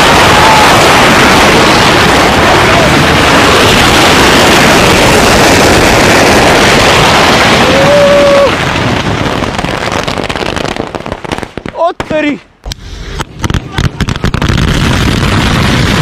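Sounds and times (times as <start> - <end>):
firecrackers crackling and banging: 0.0 - 16.0.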